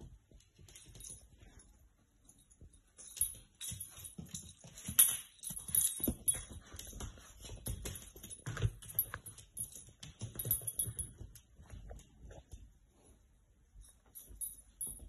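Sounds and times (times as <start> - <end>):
collar tag jingling: 0.3 - 12.6, 13.7 - 15.0
dog claws clicking on floor: 2.4 - 12.7.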